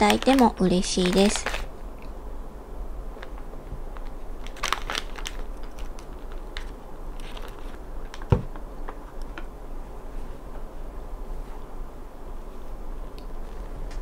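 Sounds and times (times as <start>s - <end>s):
crinkling: 0.0s - 2.1s, 3.2s - 8.3s.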